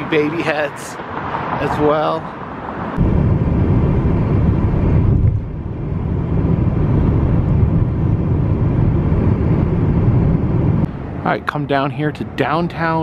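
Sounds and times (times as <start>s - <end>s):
car cabin road rumble: 2.8s - 13.0s.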